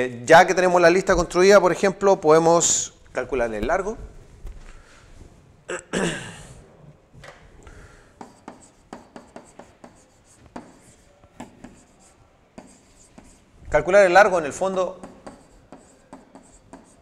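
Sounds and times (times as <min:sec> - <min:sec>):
pen tapping and rubbing on whiteboard: 0:08.2 - 0:13.5, 0:14.3 - 0:17.0.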